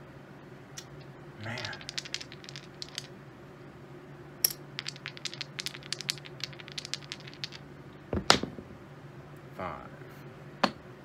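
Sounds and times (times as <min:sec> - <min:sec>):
chips clattering: 0:00.8 - 0:03.1, 0:04.4 - 0:07.6
poker chips clicking: 0:00.8 - 0:03.1, 0:04.5 - 0:07.6.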